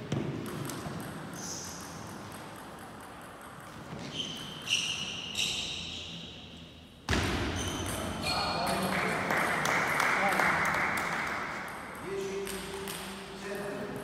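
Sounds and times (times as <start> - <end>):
table tennis ball hits: 0.0 - 4.0.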